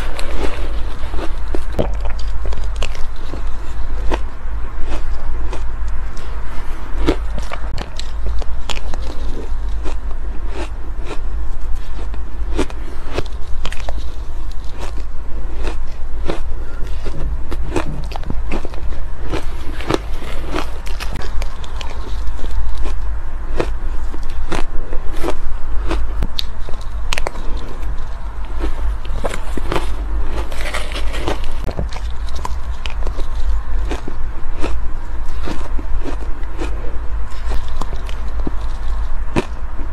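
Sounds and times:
deep rumble: 0.0 - 39.9
ice being chewed: 0.0 - 39.9
metal spoon scraping ice: 29.2 - 31.7.

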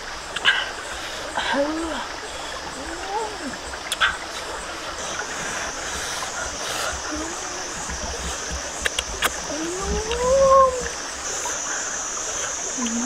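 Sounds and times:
stream running over rocks: 0.0 - 13.0
person humming: 7.0 - 7.8, 9.5 - 11.0.

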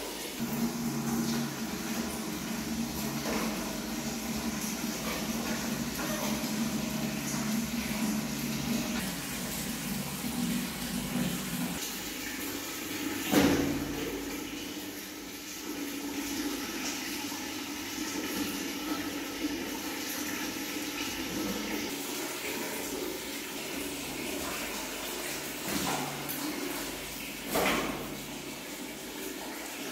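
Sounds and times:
water running from a tap: 0.0 - 29.9
water sloshing in a plastic bath: 0.0 - 29.9
water splash: 13.2 - 14.4, 25.2 - 28.6.

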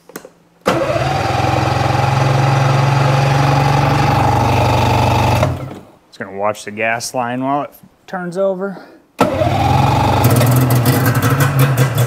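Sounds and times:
starter whine: 0.6 - 5.9, 9.2 - 12.0
snowmobile engine cranking: 0.7 - 5.8, 9.2 - 12.0.

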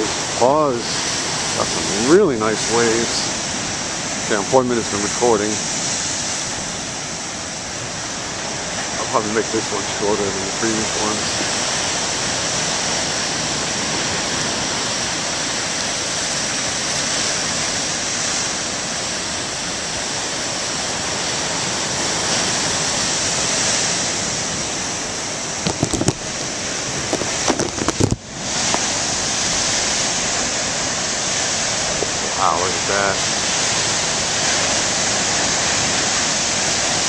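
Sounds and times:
surf breaking on rocks: 0.0 - 37.0
sharp crackles and knocks: 25.6 - 29.0.

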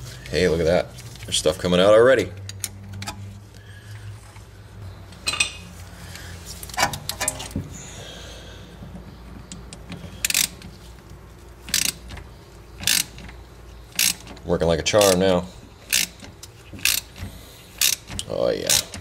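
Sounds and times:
ratchet tool clicking and clinking: 9.7 - 10.6, 11.7 - 12.1, 12.8 - 13.3, 13.9 - 15.2, 15.9 - 17.2, 17.8 - 19.0.

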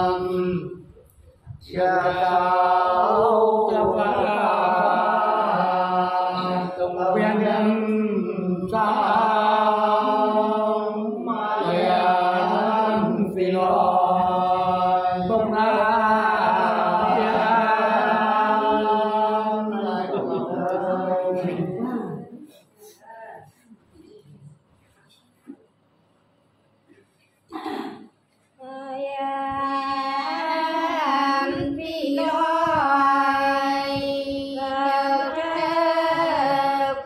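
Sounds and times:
men singing unaccompanied: 0.0 - 0.9, 1.6 - 22.3, 29.2 - 37.0.

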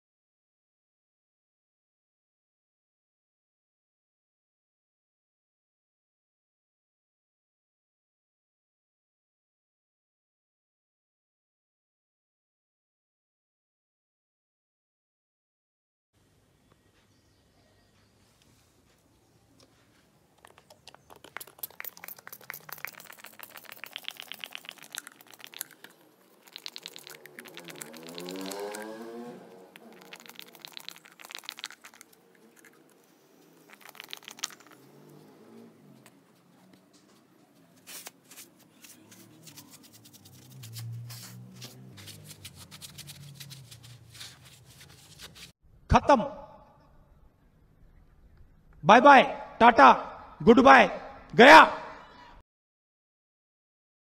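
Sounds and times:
plastic bottle crackling and clicking: 20.4 - 28.6, 29.8 - 32.8
hand scrubbing tile grout: 20.4 - 35.2, 37.6 - 45.6.

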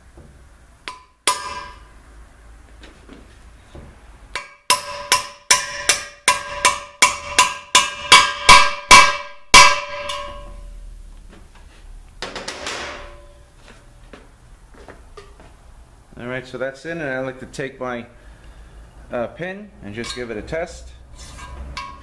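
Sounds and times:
hammer striking metal: 0.9 - 1.9, 4.3 - 10.8, 12.2 - 13.5, 21.4 - 22.0.

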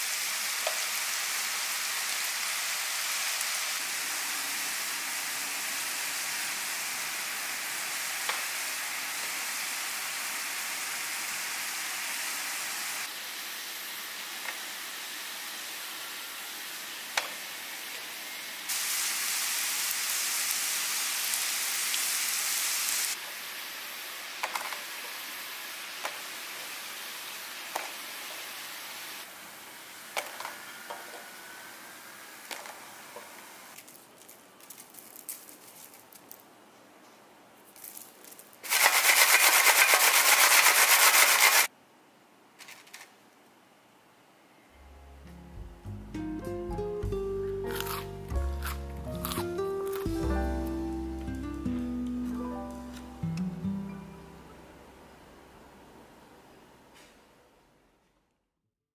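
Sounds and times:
hot oil sizzling in a frying pan: 0.0 - 33.4, 38.6 - 41.7
utensils clicking on a pan: 38.7 - 41.7.

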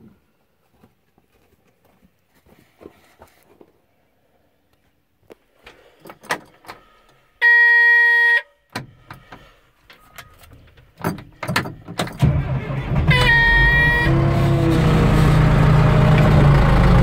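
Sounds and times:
warning buzzer: 7.4 - 8.5, 12.7 - 14.5
diesel engine cranking and running: 10.0 - 17.0.

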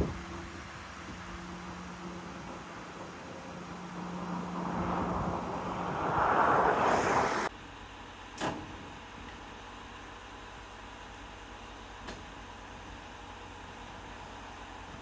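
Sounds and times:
train engine approaching: 0.0 - 7.9.

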